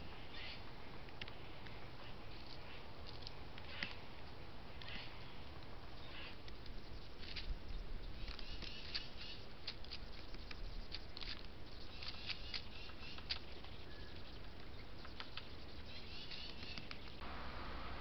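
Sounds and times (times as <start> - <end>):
woodpecker pecking on wood: 3.0 - 17.2.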